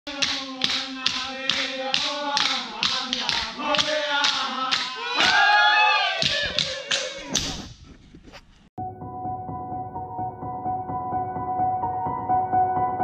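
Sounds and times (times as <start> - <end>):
group chanting: 0.1 - 7.4.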